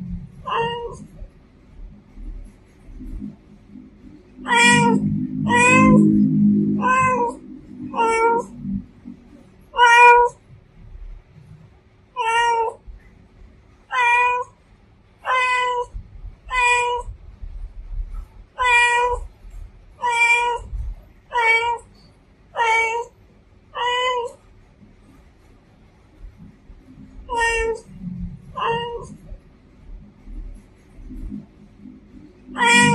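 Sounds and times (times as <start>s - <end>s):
cat meowing: 0.4s - 1.2s, 4.4s - 8.6s, 9.7s - 10.4s, 12.2s - 12.8s, 13.9s - 14.6s, 15.2s - 17.1s, 18.6s - 19.4s, 20.0s - 21.9s, 22.6s - 23.2s, 23.8s - 24.4s, 27.2s - 29.4s, 32.4s - 32.9s.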